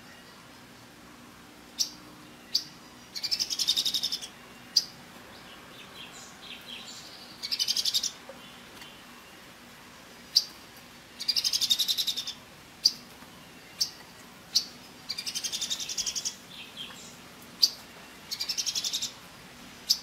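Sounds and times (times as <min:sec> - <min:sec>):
bird calling with trills: 0:01.7 - 0:05.0, 0:05.8 - 0:09.0, 0:11.2 - 0:19.2.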